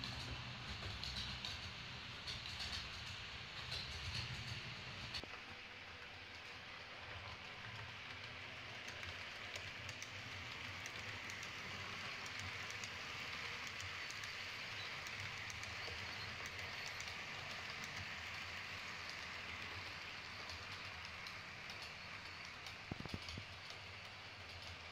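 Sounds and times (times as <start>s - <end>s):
wheels clicking on rails: 0.0s - 24.9s
model train motor hissing: 8.1s - 24.3s.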